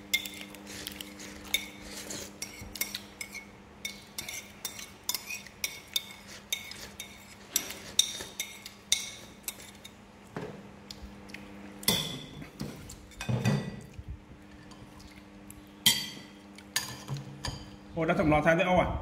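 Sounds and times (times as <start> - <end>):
spoons clinking on ceramic bowls: 15.8 - 17.8.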